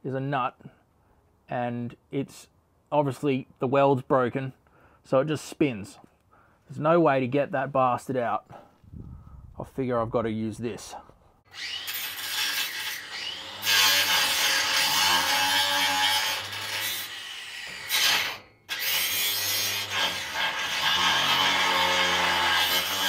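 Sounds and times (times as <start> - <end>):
angle grinder cutting metal bolt: 11.5 - 23.0.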